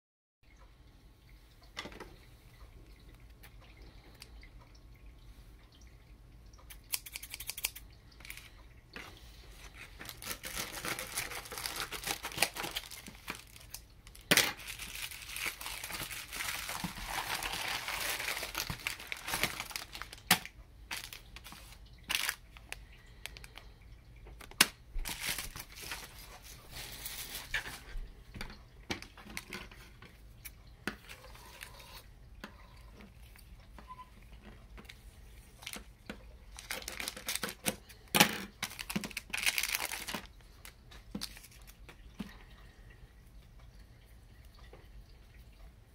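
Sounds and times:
scissors snipping: 0:06.7 - 0:07.8
plastic packaging crinkling: 0:07.0 - 0:08.5, 0:09.6 - 0:23.6, 0:24.4 - 0:27.9, 0:35.5 - 0:35.9, 0:36.5 - 0:42.0.

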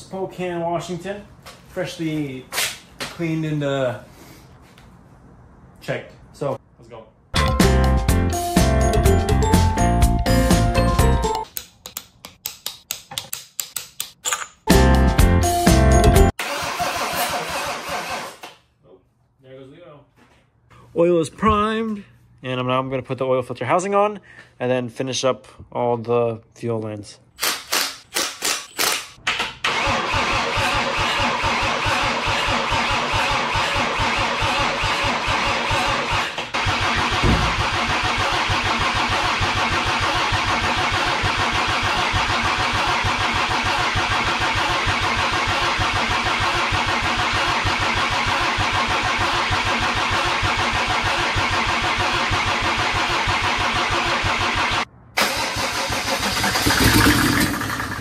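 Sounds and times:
diesel engine cranking on starter: 0:16.3 - 0:18.5, 0:29.3 - 0:58.0.

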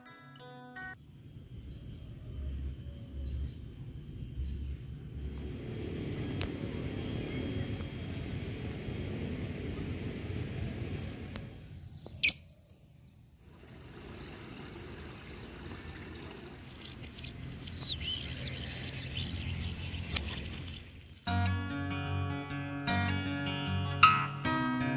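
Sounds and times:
birds chirping: 0:03.1 - 0:13.2, 0:15.4 - 0:21.3
strummed acoustic guitar music: 0:21.2 - 0:24.9.

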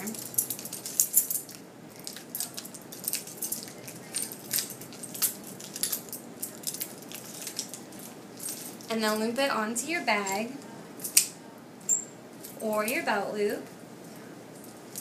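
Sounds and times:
keys jingling and clinking: 0:00.0 - 0:09.3, 0:11.0 - 0:13.0, 0:14.6 - 0:15.0.

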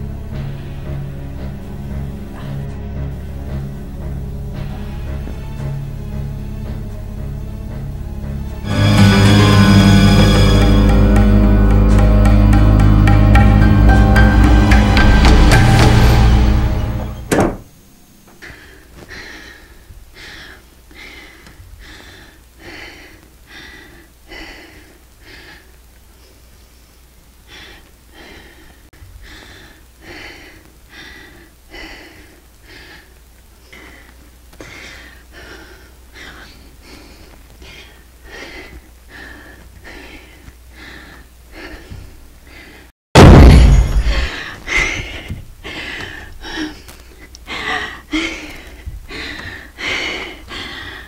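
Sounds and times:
woman panting: 0:18.4 - 0:26.4, 0:27.5 - 0:42.9, 0:44.3 - 0:51.0.

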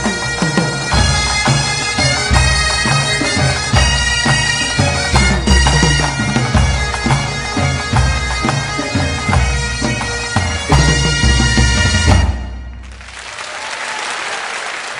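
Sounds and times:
bagpipes over a drone: 0:00.0 - 0:12.6
low drum beat: 0:00.0 - 0:12.8.

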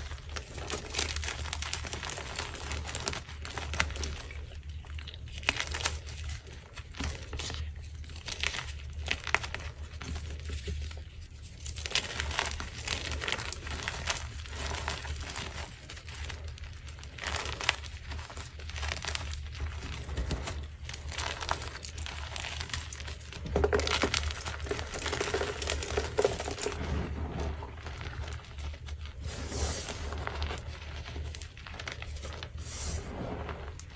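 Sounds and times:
chalk crunching by hand: 0:24.6 - 0:33.9.

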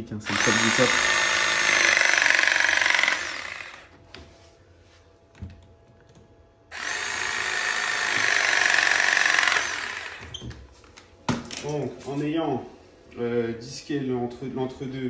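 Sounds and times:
electric press tool whirring: 0:00.2 - 0:04.0, 0:06.7 - 0:10.4.

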